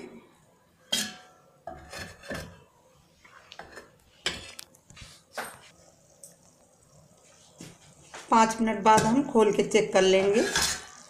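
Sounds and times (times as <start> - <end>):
metal lid clinking on pan: 0.9 - 2.4.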